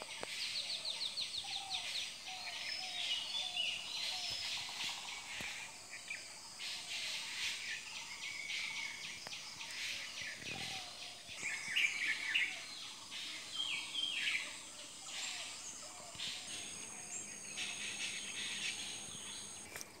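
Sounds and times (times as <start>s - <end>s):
birds chirping and calling: 7.4s - 19.8s.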